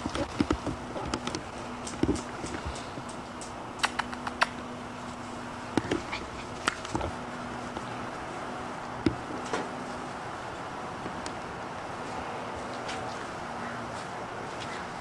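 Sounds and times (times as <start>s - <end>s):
steady low hum: 0.0s - 15.0s
sharp clicks and taps: 0.1s - 4.6s
puppies squeaking and whimpering: 5.9s - 6.7s.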